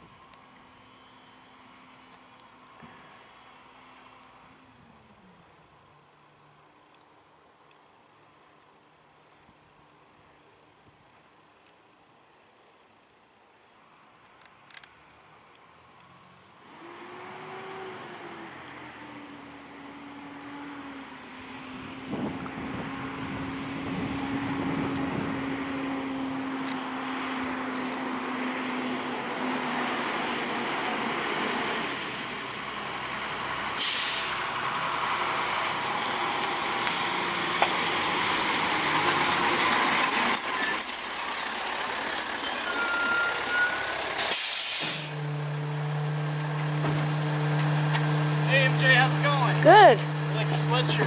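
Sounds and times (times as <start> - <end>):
garbage truck diesel engine: 22.6 - 51.0
brakes squealing: 30.9 - 33.0, 33.7 - 51.0
air brake hiss: 33.8 - 34.4, 44.2 - 45.2.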